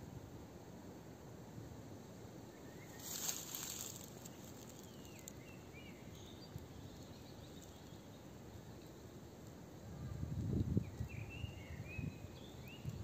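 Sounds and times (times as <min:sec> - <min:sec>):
faint bird chirps: 0:02.5 - 0:09.2, 0:09.8 - 0:13.0.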